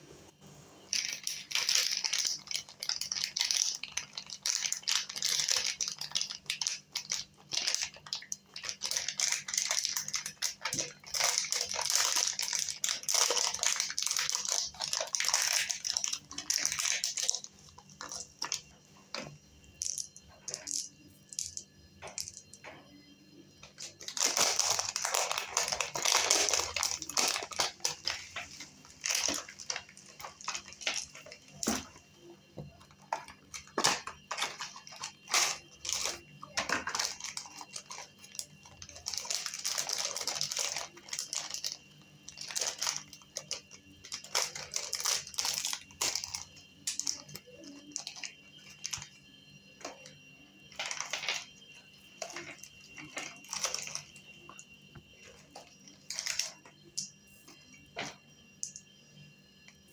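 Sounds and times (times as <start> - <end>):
foil wrapper crinkling: 0.9 - 18.7, 23.7 - 31.9, 32.9 - 49.1, 50.7 - 51.5, 52.2 - 54.6, 55.6 - 57.1.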